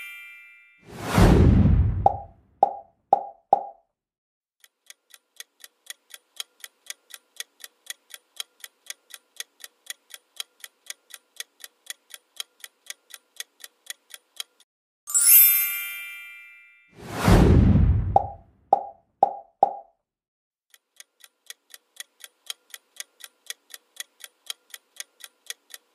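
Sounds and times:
bright chime: 15.1s - 17.0s.

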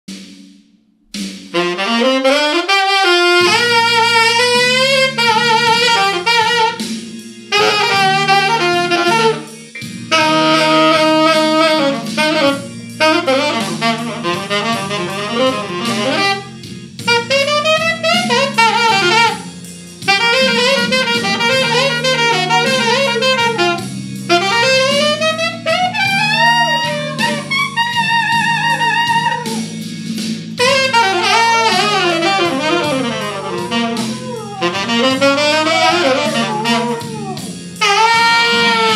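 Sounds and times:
tenor saxophone jazzy melody: 1.2s - 38.9s
dog howling: 7.5s - 8.5s, 26.0s - 29.8s, 30.9s - 38.9s.

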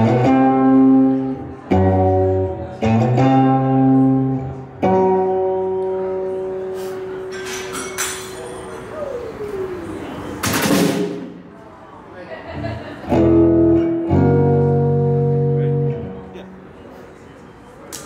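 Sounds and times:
acoustic guitar strumming blues: 0.0s - 6.7s, 13.1s - 16.2s.

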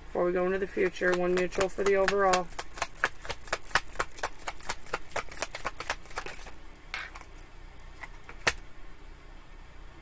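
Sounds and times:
cards shuffling: 0.6s - 7.4s.

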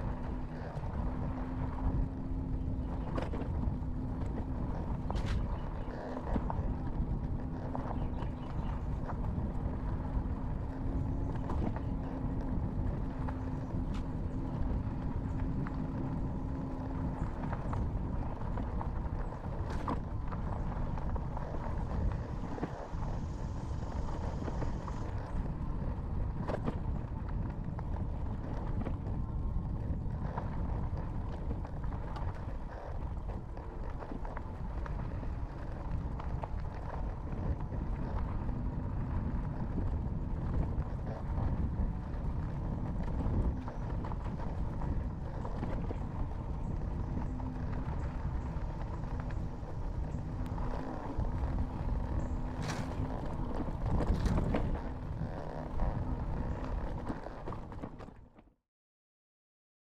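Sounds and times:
tires rumbling on dirt: 0.0s - 58.6s
bike rattles and knocks: 26.1s - 58.4s.

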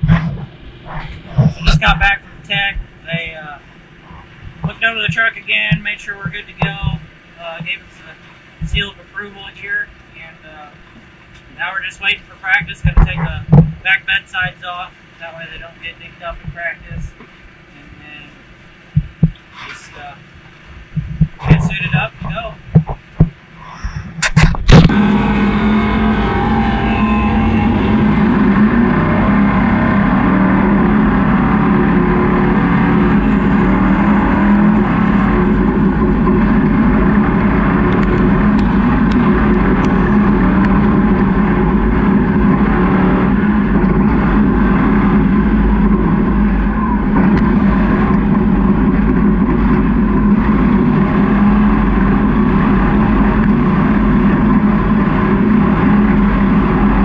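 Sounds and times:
race truck engine running loud: 24.0s - 57.0s.

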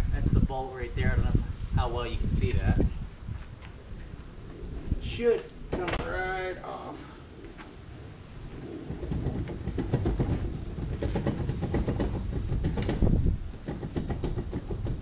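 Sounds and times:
metal clunks and rattles: 8.8s - 15.0s.

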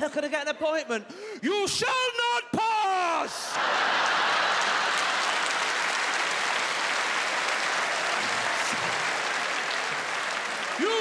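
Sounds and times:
audience laughing: 3.4s - 5.9s
audience applauding: 3.5s - 11.0s.

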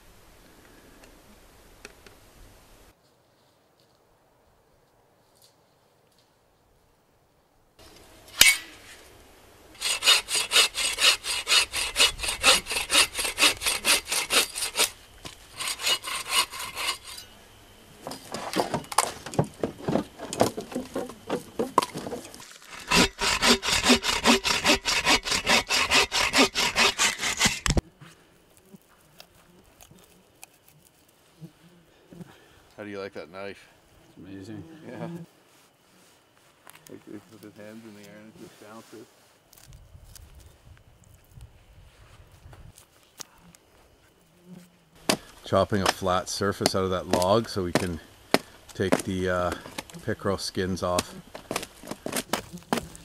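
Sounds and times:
hand saw cutting wood: 9.8s - 17.3s, 20.2s - 27.8s.

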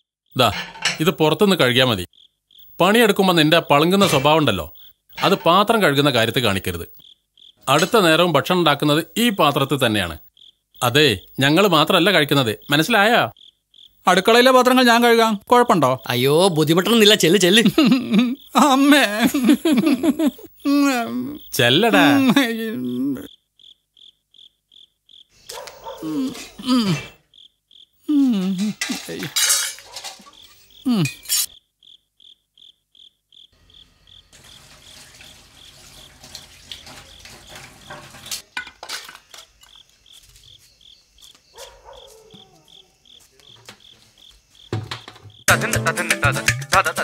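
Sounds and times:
dishes and cutlery clinking: 0.4s - 1.2s, 3.9s - 4.5s, 28.6s - 31.5s, 36.2s - 39.5s
cricket chirping: 0.4s - 45.5s
person making wordless vocal sounds: 17.3s - 23.3s, 26.0s - 27.2s, 28.0s - 29.3s, 30.8s - 31.2s, 45.5s - 47.0s
running water at a sink: 34.4s - 38.4s.

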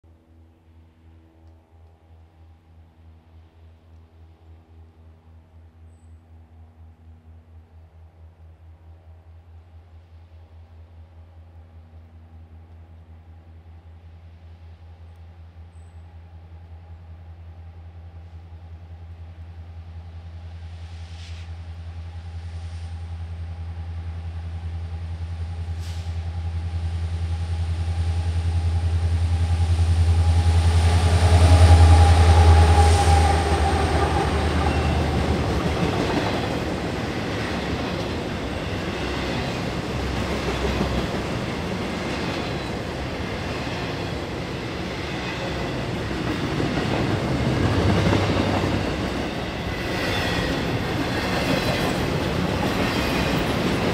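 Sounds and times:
locomotive engine hum: 0.1s - 53.9s
freight cars rumbling and clacking: 32.7s - 53.9s.

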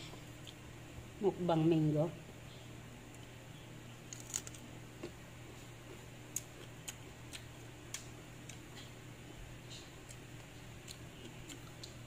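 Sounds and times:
chewing crunches: 4.0s - 5.2s, 6.3s - 8.9s, 9.7s - 12.0s.

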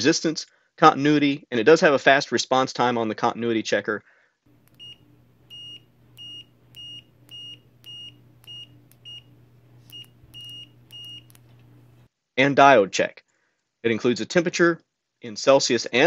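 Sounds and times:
multimeter continuity beeps: 4.5s - 12.1s.

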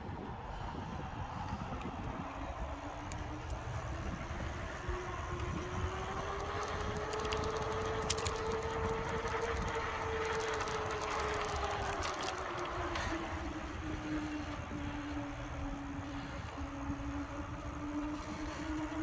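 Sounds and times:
e-bike motor whining: 0.0s - 19.0s.

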